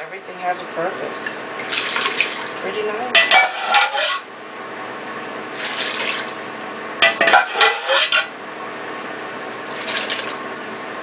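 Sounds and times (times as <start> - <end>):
liquid pouring and trickling: 1.6 - 2.6, 5.6 - 6.4, 9.6 - 10.5
metal pots clattering: 3.2 - 4.2, 7.0 - 8.3.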